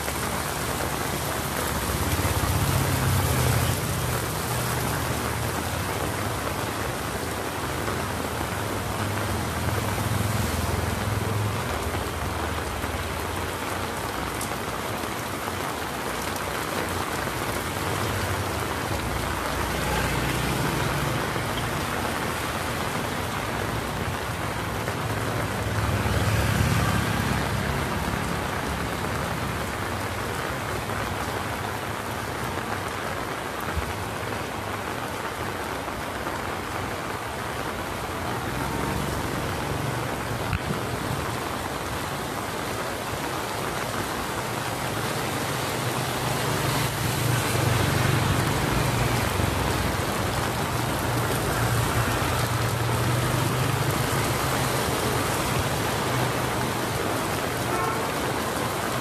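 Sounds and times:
heavy rain on pavement: 0.0 - 59.0.

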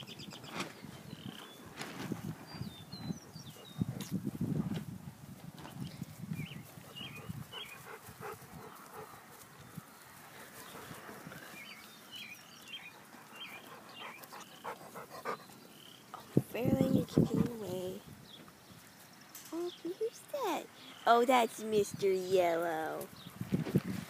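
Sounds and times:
puppies panting and snuffling: 1.3 - 4.2, 6.5 - 18.0.

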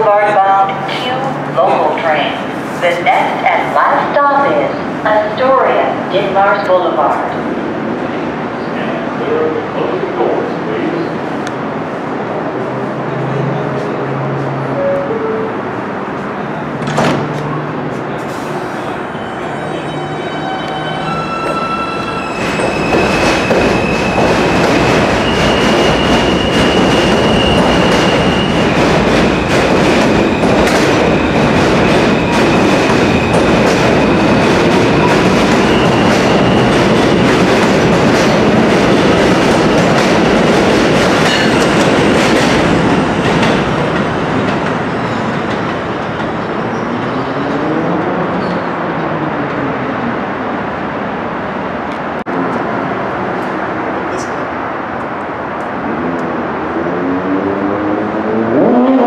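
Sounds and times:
train clickety-clack over rail joints: 22.6 - 47.7.

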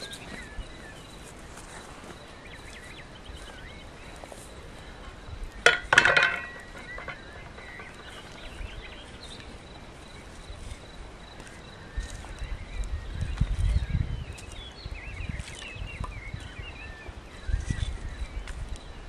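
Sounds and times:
metal pan clanking on iron stand: 5.6 - 8.5
metallic clatter and ringing: 5.6 - 8.8.

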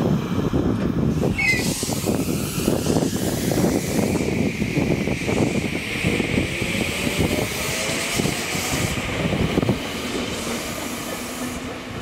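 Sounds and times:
electric train rumbling: 0.0 - 12.0.

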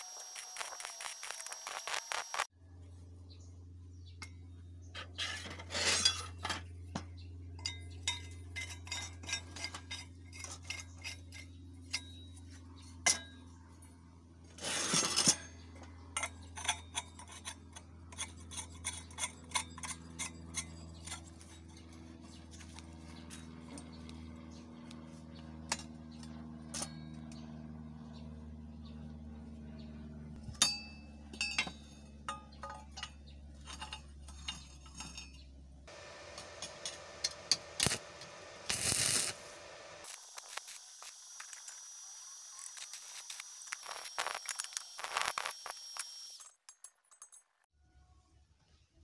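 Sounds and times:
metal scraping rasps: 0.0 - 2.5, 5.0 - 6.7, 8.1 - 12.2, 14.5 - 15.5, 16.2 - 22.1, 33.0 - 47.4
steel parts clinking and knocking: 30.6 - 35.4, 46.4 - 47.6.

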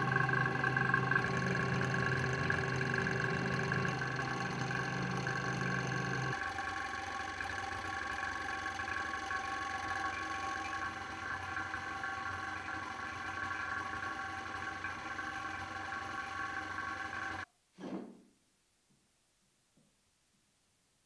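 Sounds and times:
motor humming: 0.0 - 17.4.

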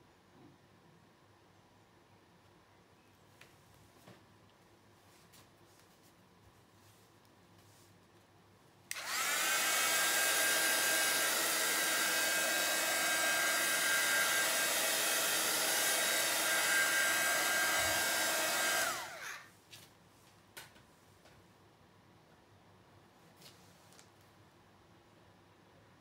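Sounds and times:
hot-air blower motor whine: 8.9 - 19.5.

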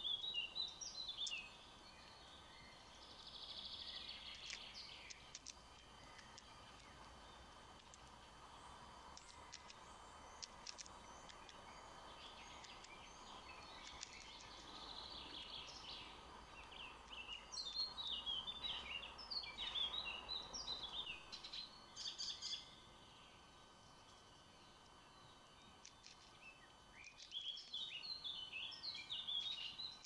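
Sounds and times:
birds chirping: 0.0 - 30.0
faint outdoor hum: 0.0 - 30.0.

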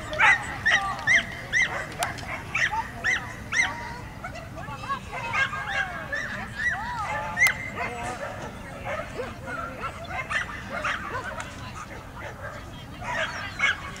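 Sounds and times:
dog yipping: 0.1 - 4.4, 5.2 - 14.0.

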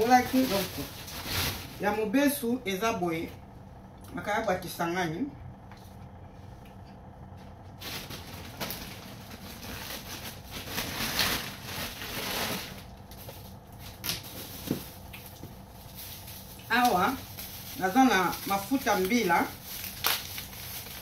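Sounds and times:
plastic bag rustling: 0.0 - 2.1, 7.7 - 21.0.

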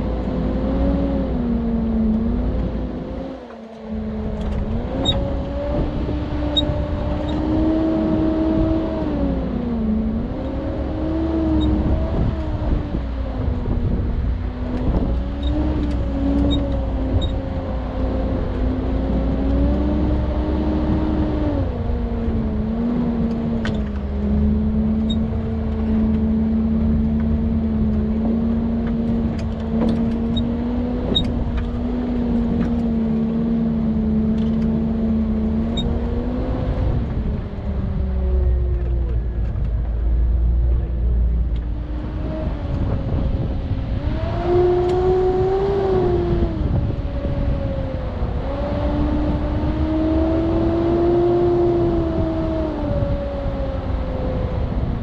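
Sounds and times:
car engine running: 0.0 - 55.0
light clicks and rattles: 25.0 - 33.3.

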